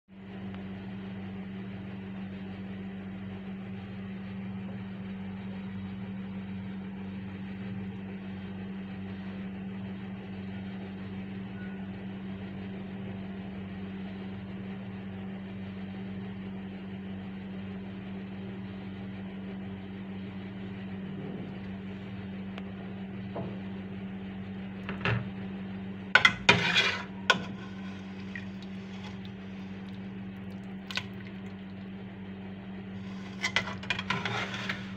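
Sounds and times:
low hum with hiss: 0:00.2 - 0:34.9.

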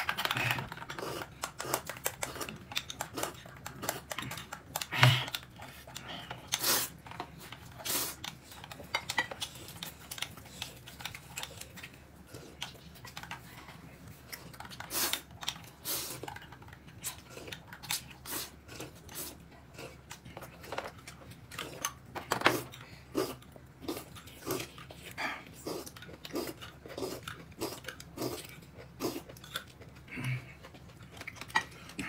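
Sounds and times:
chewing: 0:00.0 - 0:32.0.

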